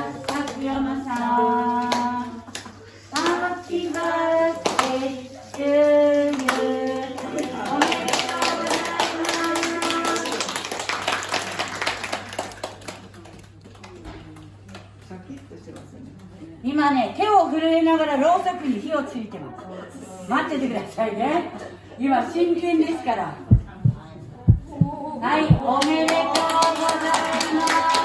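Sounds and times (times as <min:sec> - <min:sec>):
group singing held notes: 0:00.0 - 0:10.4, 0:24.6 - 0:28.0
hands clapping: 0:06.3 - 0:15.9
applause: 0:06.4 - 0:14.5, 0:25.8 - 0:28.0.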